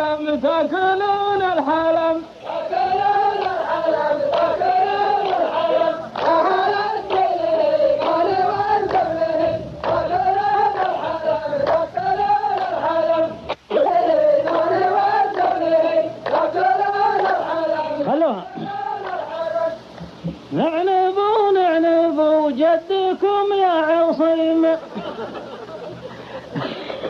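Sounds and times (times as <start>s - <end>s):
chorus chanting a sung verse: 0.0s - 26.7s
sharp hand claps: 3.4s - 3.7s, 4.3s - 9.2s, 9.8s - 11.9s, 12.5s - 12.8s, 14.4s - 15.6s, 16.2s - 17.5s, 18.6s - 19.4s.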